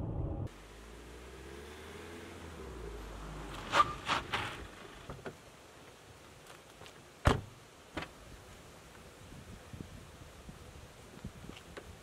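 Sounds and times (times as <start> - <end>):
car pulling in: 0.0 - 5.2.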